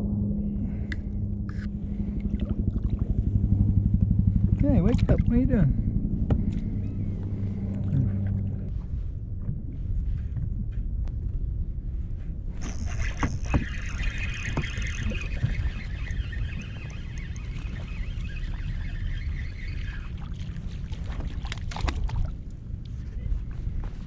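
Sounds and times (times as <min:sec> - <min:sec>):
steady low rumble: 0:00.0 - 0:24.0
fishing reel whirring: 0:12.6 - 0:21.4.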